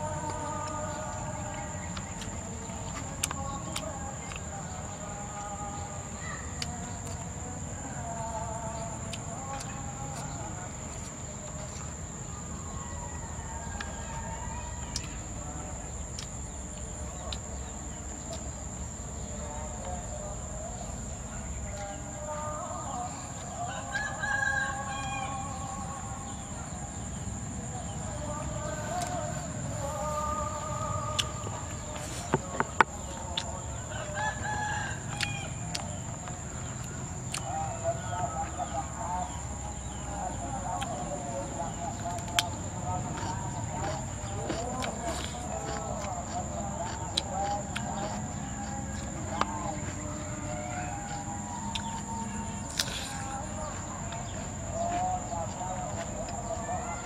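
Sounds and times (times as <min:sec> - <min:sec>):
insects droning: 0:00.0 - 0:57.0
chewing clicks and lip smacks: 0:01.9 - 0:04.6, 0:31.1 - 0:33.7, 0:35.1 - 0:37.6, 0:42.0 - 0:56.4
rooster crowing: 0:11.2 - 0:15.8, 0:21.4 - 0:57.0.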